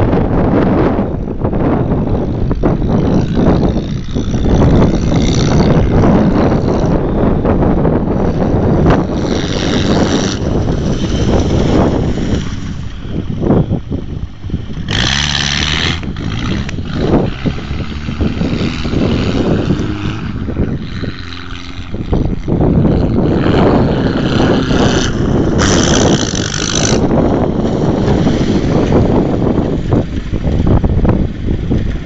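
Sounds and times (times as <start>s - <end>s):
wind noise on microphone: 0.0s - 32.0s
van engine revving: 1.4s - 29.9s.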